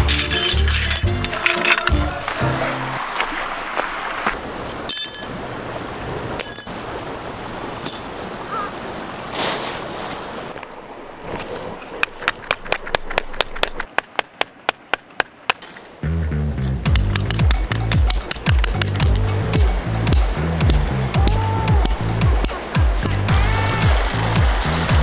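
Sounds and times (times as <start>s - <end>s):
metal tent pegs clinking: 0.0s - 2.8s, 4.8s - 5.6s, 6.4s - 6.8s, 7.5s - 8.2s, 16.4s - 23.3s
fast sharp ticks: 16.8s - 23.2s.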